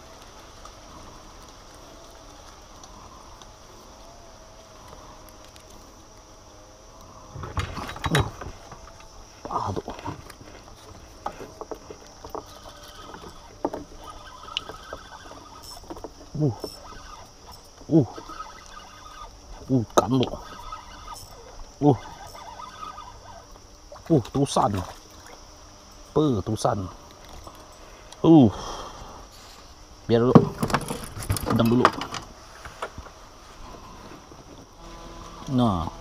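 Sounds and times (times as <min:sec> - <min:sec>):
small clicks: 0:00.0 - 0:06.3
gear knocking against boat: 0:30.2 - 0:32.9.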